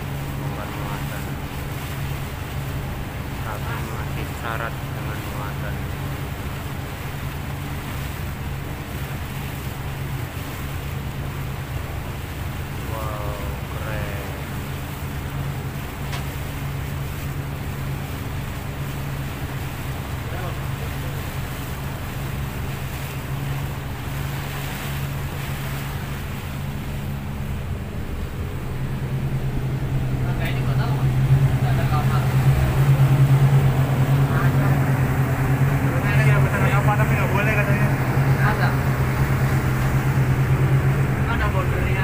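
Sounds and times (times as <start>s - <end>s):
speedboat engine humming: 0.0s - 42.0s
water rushing past hull: 0.0s - 42.0s
wind buffeting microphone: 21.0s - 42.0s.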